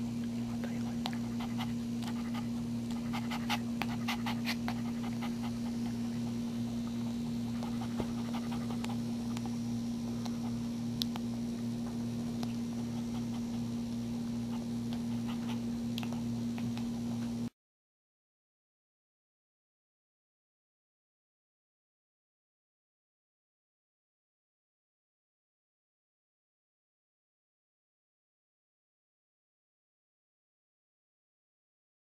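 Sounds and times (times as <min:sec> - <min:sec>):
dog panting: 0:00.9 - 0:09.6, 0:12.4 - 0:17.3.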